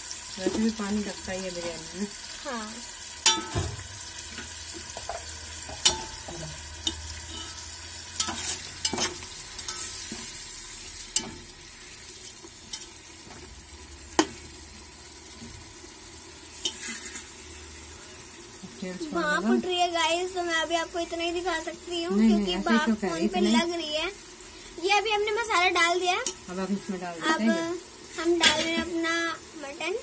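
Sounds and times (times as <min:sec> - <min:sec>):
masala sizzling in a pot: 0:00.0 - 0:30.0
metal spatula clinking on pot: 0:03.2 - 0:03.6, 0:05.0 - 0:10.2.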